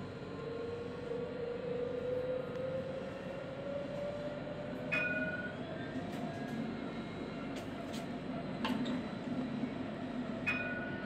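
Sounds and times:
tram motor whine rising: 0.0s - 11.0s
wheels rumbling on rails: 0.0s - 11.0s.

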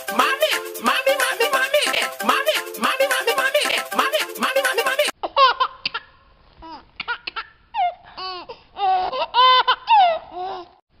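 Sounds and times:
baby giggling and squealing: 0.2s - 10.8s.

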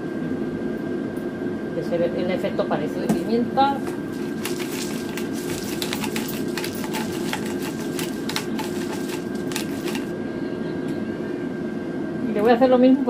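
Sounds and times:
air fryer fan hum: 0.0s - 13.0s
pepper grinder clicking: 4.2s - 10.1s.

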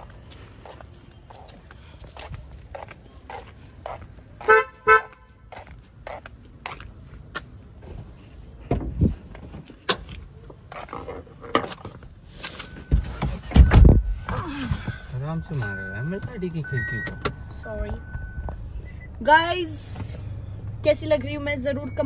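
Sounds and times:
shuffling steps: 0.0s - 11.1s
car horn chirps: 4.4s - 5.5s
car door thuds: 8.7s - 9.1s, 12.9s - 14.2s.

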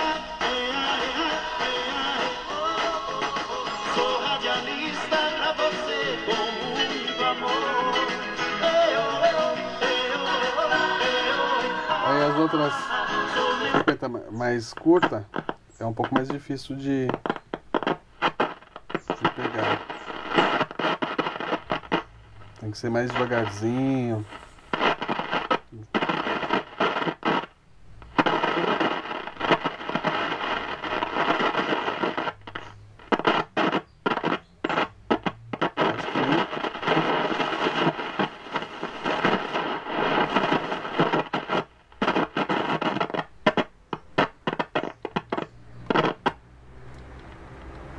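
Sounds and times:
radio static hiss: 0.0s - 46.4s
faint wavering radio tones: 8.6s - 46.3s.

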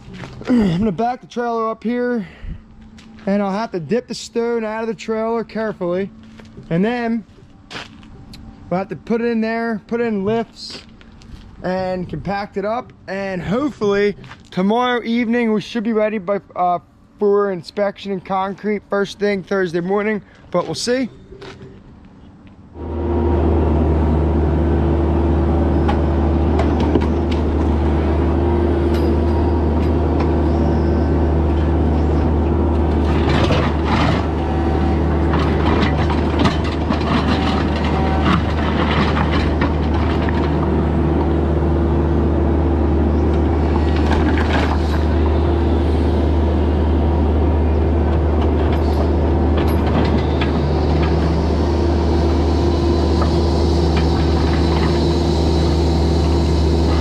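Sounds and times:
mini excavator diesel engine: 0.0s - 57.0s
metal clanks and scrapes: 32.9s - 40.6s, 48.4s - 51.4s.

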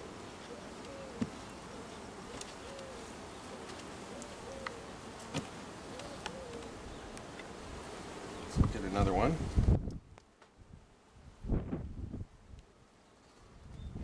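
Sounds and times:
honeybees buzzing: 0.0s - 9.7s.

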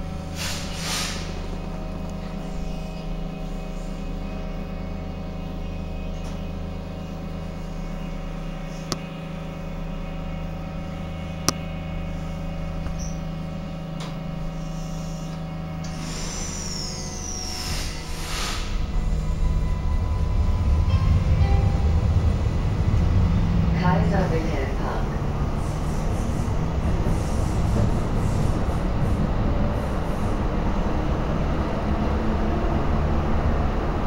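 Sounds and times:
electrical equipment humming: 1.4s - 32.3s
falling high whine: 14.6s - 26.1s.

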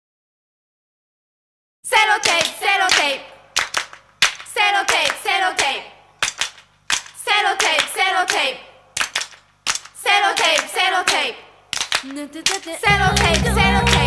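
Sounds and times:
chanted vocal phrases: 1.9s - 3.5s, 4.5s - 6.1s, 7.2s - 8.9s, 10.0s - 14.0s
handclaps: 2.2s - 14.0s.

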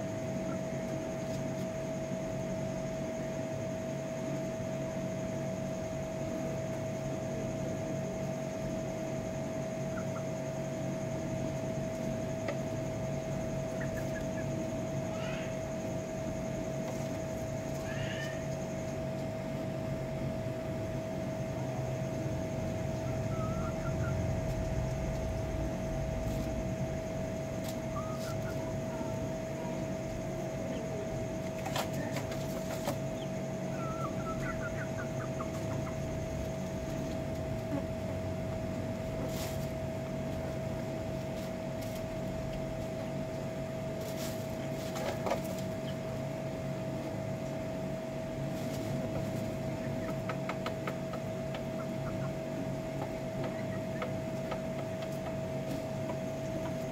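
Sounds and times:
machine hum with whine: 0.0s - 56.9s
chickens chirping: 9.8s - 10.5s, 11.9s - 16.0s, 21.5s - 26.6s, 27.5s - 42.1s, 44.0s - 46.2s, 48.5s - 56.9s.

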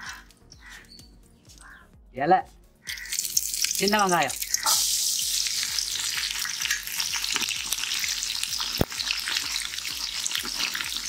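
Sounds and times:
shallots sizzling in hot oil: 2.9s - 11.0s
ladle stirring in pot: 5.8s - 11.0s.

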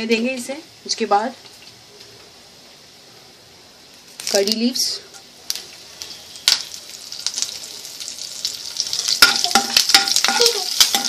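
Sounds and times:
leaves sizzling in hot oil: 3.7s - 11.0s.

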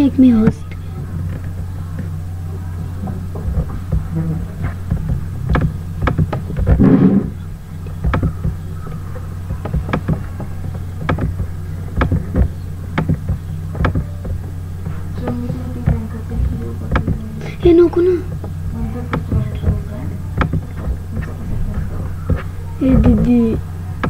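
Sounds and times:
low steady hum: 0.0s - 24.0s
short loud noise: 6.8s - 7.4s.

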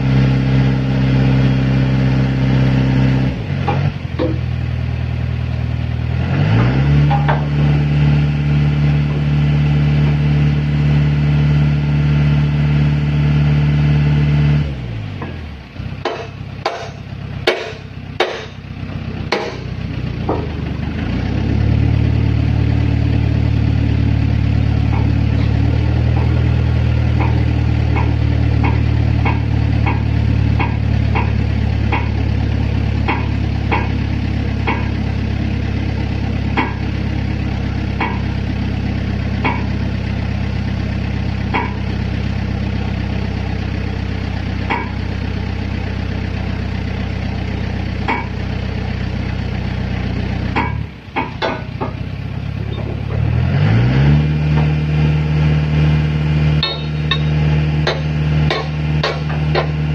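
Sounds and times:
hydraulic power unit engine running: 14.0s - 59.9s.

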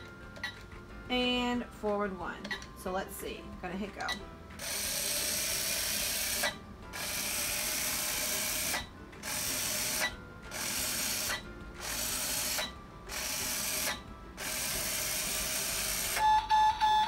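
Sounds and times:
toy robot motor whirring: 4.6s - 16.2s.

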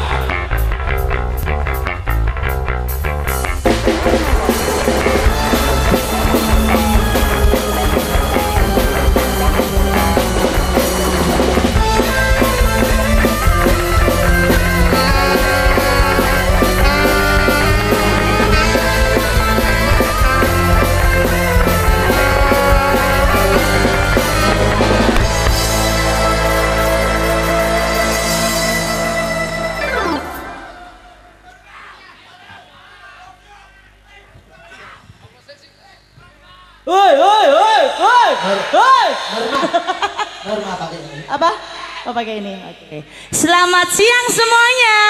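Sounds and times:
drum kit: 0.0s - 31.0s
electric guitar: 0.0s - 31.1s
rock music: 0.0s - 31.3s.

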